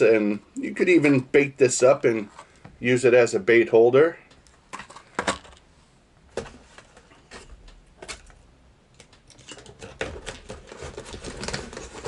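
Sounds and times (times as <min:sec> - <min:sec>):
paper packing crinkling: 0:09.3 - 0:12.0.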